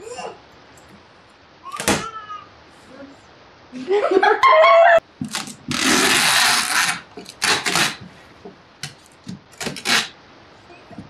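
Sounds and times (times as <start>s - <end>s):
packing tape ripped off box: 5.2s - 8.1s, 8.8s - 10.2s.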